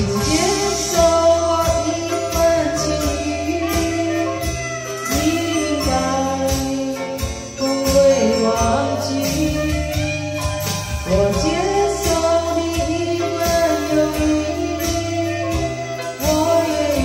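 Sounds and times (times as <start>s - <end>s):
karaoke song from tv speaker: 0.0s - 17.0s.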